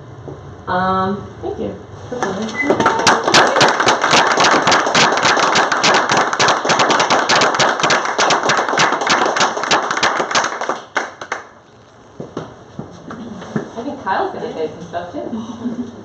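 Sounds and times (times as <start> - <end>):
audience applauding: 2.2 - 11.6.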